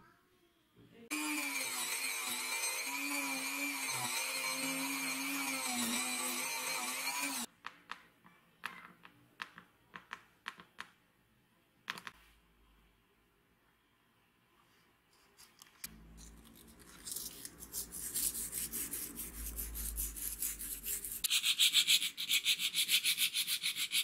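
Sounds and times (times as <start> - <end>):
rotary tool cutting screw: 1.1 - 7.5.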